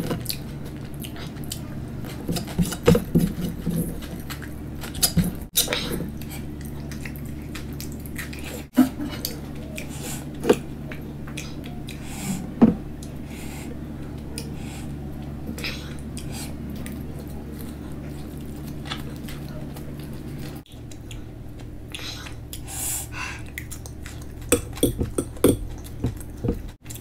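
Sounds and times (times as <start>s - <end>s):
chewing and wet mouth sounds: 0.0s - 27.0s
steady low hum: 0.0s - 27.0s.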